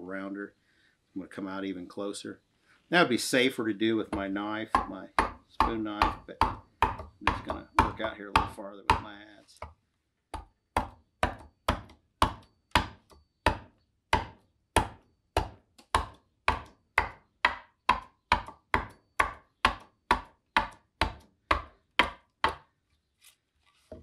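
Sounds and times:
adze chopping wood: 4.1 - 22.7.

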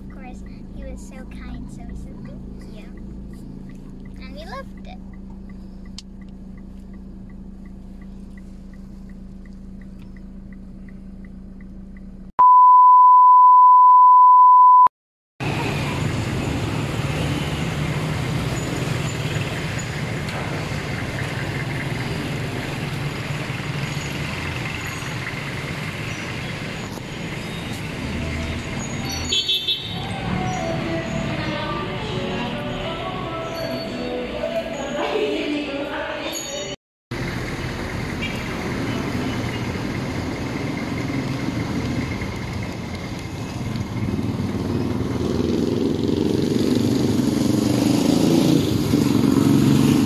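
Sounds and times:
faint regular ticking: 0.0 - 12.3
street traffic noise: 0.0 - 12.3, 15.4 - 50.0
loud single-pitch beep: 12.4 - 14.9.

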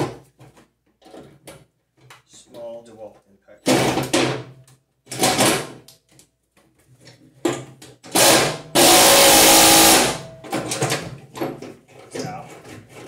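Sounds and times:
cordless impact driver: 8.1 - 10.3.

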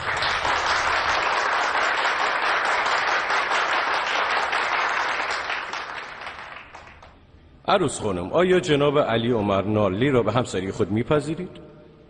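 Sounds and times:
crowd applauding: 0.0 - 7.2.

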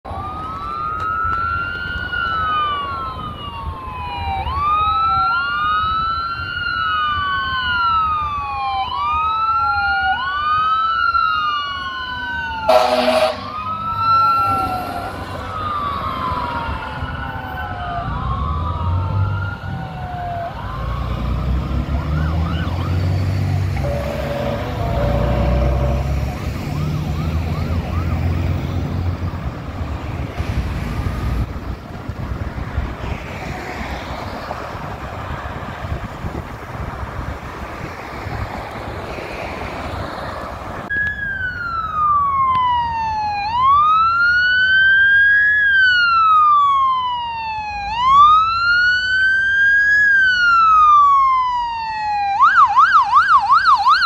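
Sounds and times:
fire engine siren wailing: 0.0 - 54.0
air horn blast: 12.7 - 13.6, 23.8 - 26.2.

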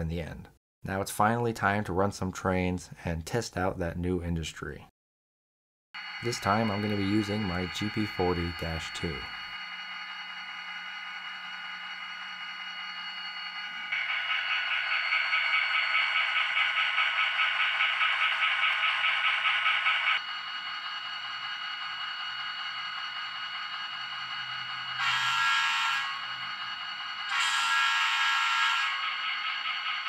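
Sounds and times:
bell ringing rapidly: 6.0 - 12.8
low diesel engine: 6.0 - 27.7.

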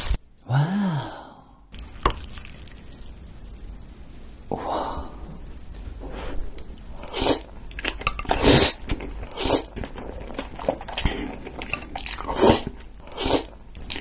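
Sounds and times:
slurping noodles: 6.9 - 7.5, 8.3 - 14.0.

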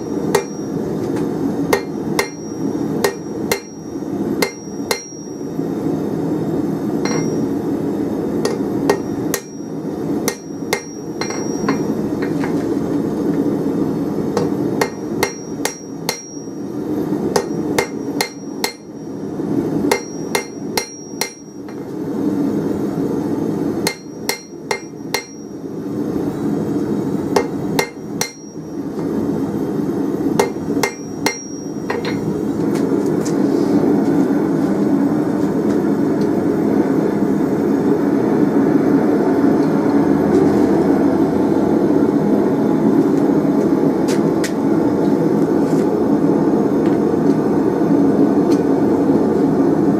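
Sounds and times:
hammer striking steel on anvil: 0.0 - 5.5, 7.0 - 7.6, 8.4 - 12.6, 14.4 - 16.7, 17.3 - 19.1, 19.9 - 21.9, 23.8 - 25.6, 27.3 - 29.1, 30.4 - 32.4
steady low rumble: 0.0 - 49.9.

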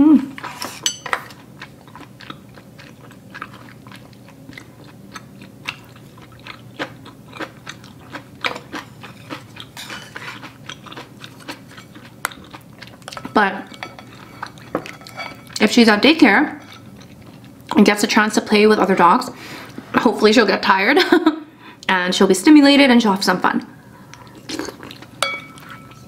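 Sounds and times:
person chewing food: 0.3 - 15.7, 16.6 - 17.8, 24.0 - 26.0.

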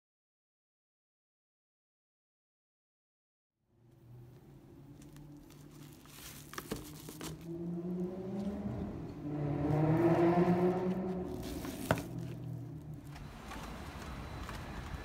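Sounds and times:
bag and containers rustling: 4.9 - 7.5, 11.3 - 15.0.

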